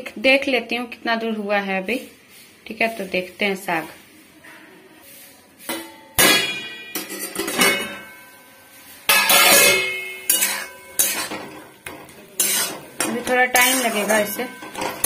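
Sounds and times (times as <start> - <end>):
metallic ringing: 5.8 - 11.7, 12.4 - 15.0.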